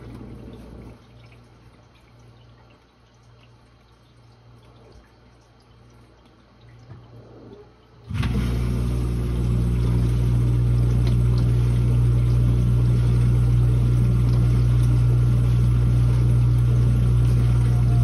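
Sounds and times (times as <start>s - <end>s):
dishwasher pump humming: 0.0s - 18.0s
water churning and spraying: 8.1s - 18.0s.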